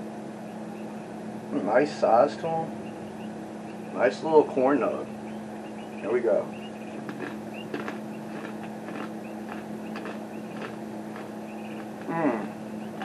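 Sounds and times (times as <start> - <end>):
steady hum: 0.0 - 13.0
crunchy chewing: 6.5 - 13.0.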